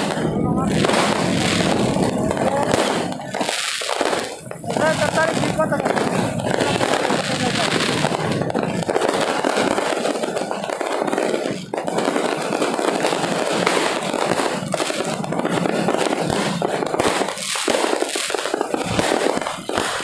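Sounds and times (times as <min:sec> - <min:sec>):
firecrackers and fireworks crackling: 0:00.0 - 0:20.0.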